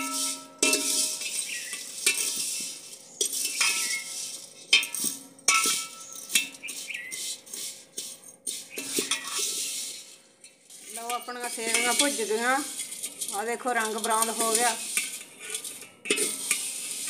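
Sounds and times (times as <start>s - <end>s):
dry rustle of noodles: 0.0s - 5.2s, 5.9s - 17.0s
ladle scraping and clinking in pot: 0.0s - 17.0s.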